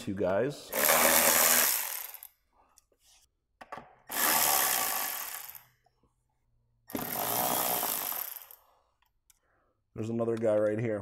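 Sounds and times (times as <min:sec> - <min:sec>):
handheld power tool running: 0:00.7 - 0:02.3, 0:04.1 - 0:05.6, 0:06.9 - 0:08.6.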